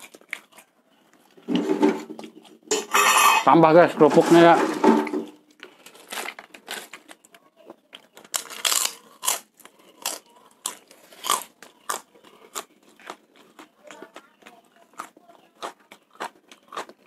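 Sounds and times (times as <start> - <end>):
crunchy crackers being chewed: 0.0 - 1.5, 5.4 - 17.0.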